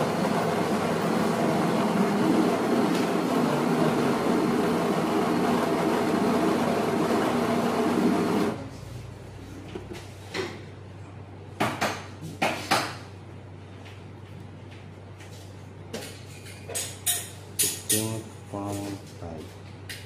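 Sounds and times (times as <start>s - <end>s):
coffee grinder grinding: 0.0s - 8.6s.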